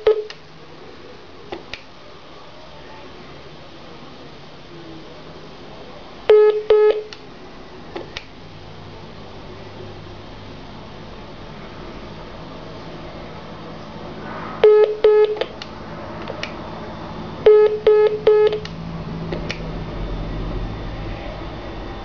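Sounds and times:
telephone beeps: 0.0s - 0.4s, 6.3s - 7.1s, 14.6s - 15.5s, 17.4s - 18.7s
low line hum: 0.0s - 22.0s.

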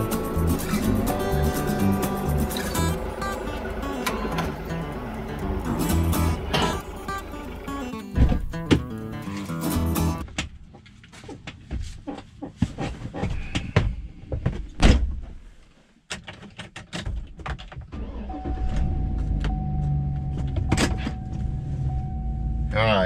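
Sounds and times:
truck engine running hum: 0.0s - 10.2s
loud thump: 8.2s - 8.9s
knocks clicks and rustling: 16.1s - 18.0s.

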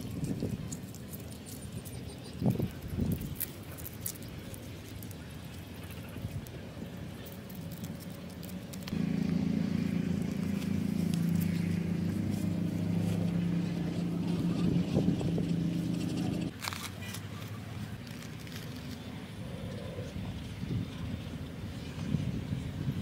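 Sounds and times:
low engine drone: 8.8s - 16.5s.

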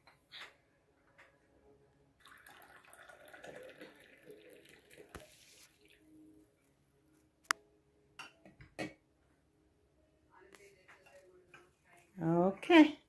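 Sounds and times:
tea trickling into a cup: 2.2s - 6.0s.

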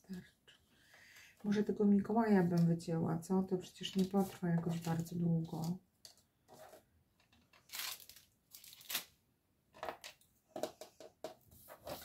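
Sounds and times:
paper rustling: 11.5s - 12.0s.

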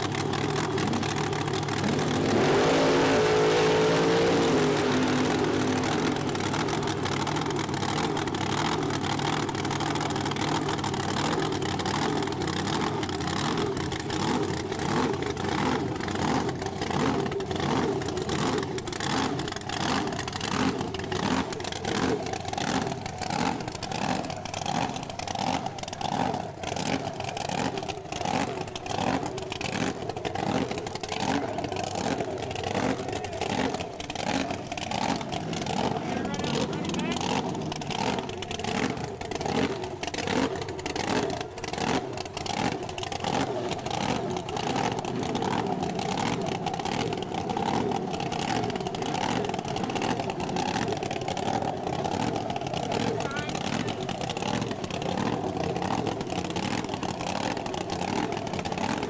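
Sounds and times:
drag-racing engine idling: 0.0s - 59.0s.

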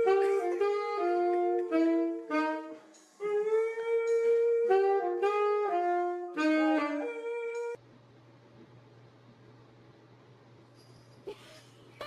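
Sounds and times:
solo instrumental melody: 0.0s - 7.8s.

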